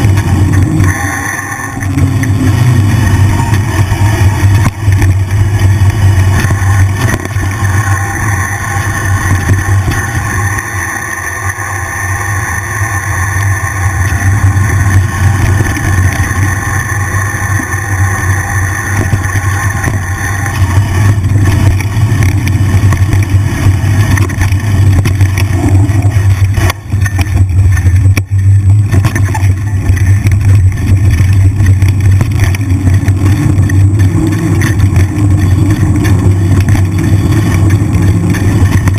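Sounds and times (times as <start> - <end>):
wind and trail rumble: 0.0 - 38.9
bike knocks and rattles: 18.9 - 38.9.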